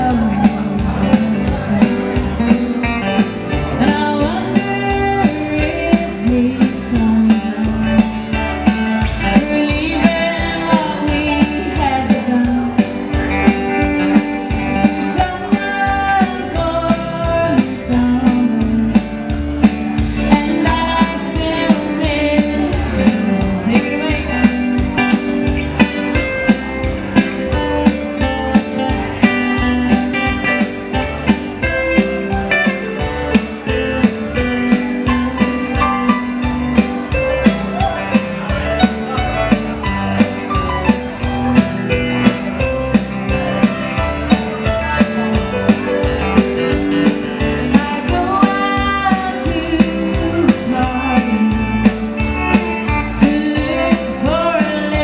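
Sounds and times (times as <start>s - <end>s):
woman singing: 0.0s - 2.6s, 3.7s - 8.1s, 9.1s - 13.2s, 14.7s - 19.3s, 20.0s - 24.9s, 47.6s - 52.1s, 52.9s - 55.0s
electric guitars: 0.0s - 55.0s.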